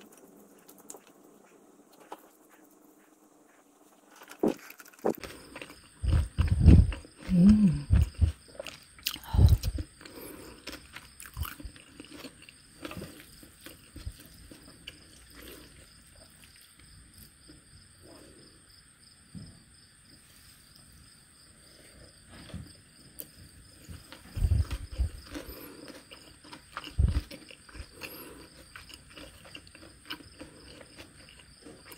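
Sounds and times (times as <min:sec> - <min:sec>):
chewing mouth noises: 0:04.1 - 0:16.8, 0:23.9 - 0:31.9.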